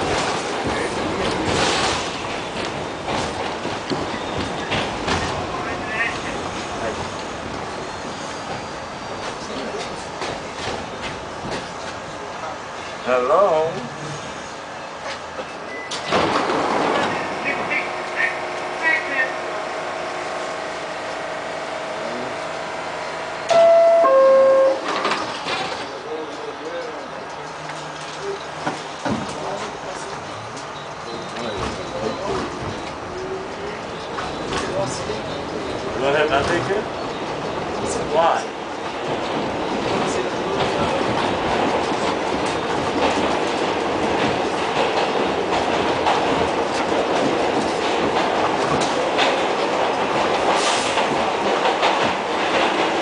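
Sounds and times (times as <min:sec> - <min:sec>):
subway car hum: 0:00.0 - 0:53.0
doors sliding shut: 0:15.9 - 0:17.4
two-tone door chime: 0:23.5 - 0:24.9.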